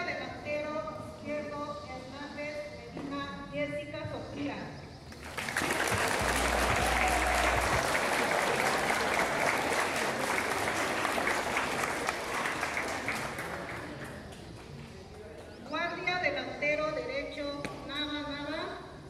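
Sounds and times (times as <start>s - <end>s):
crowd applauding: 5.1s - 14.8s.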